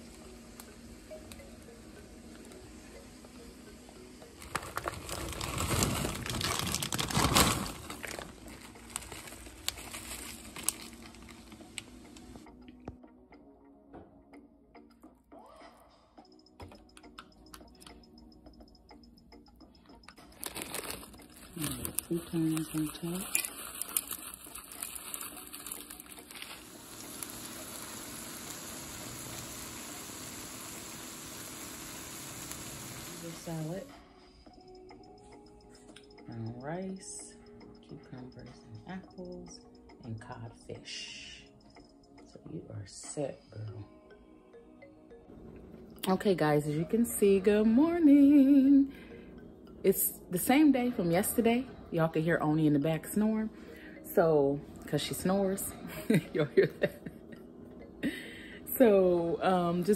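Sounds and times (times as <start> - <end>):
crinkling and rustling: 4.4 - 11.9, 20.2 - 26.7
food sizzling in a pan: 22.3 - 33.8.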